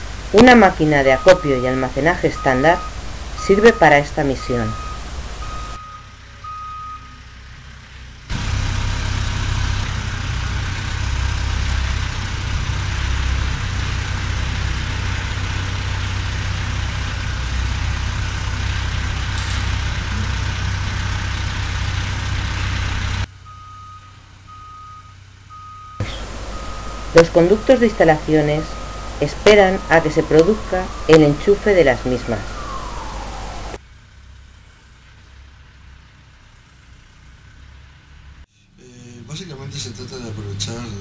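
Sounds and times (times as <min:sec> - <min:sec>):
diesel engine rumbling: 0:00.0 - 0:41.0
warning alarm beeps: 0:00.3 - 0:07.2, 0:23.4 - 0:33.8.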